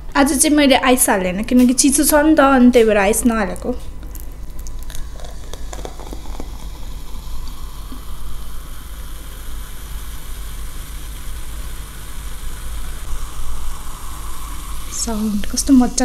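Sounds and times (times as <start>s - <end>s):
low hum: 2.3s - 16.0s
cola fizzing in a glass: 4.6s - 15.6s.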